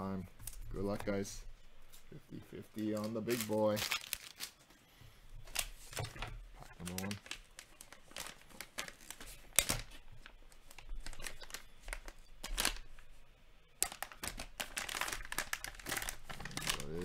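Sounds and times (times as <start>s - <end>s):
wrapper tearing and crinkling: 2.9s - 4.6s, 6.8s - 13.0s, 13.8s - 17.0s.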